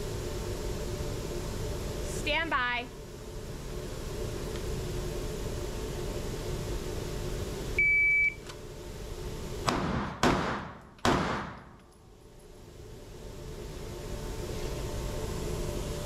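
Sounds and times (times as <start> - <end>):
pistol shots echoing indoors: 9.7 - 11.7.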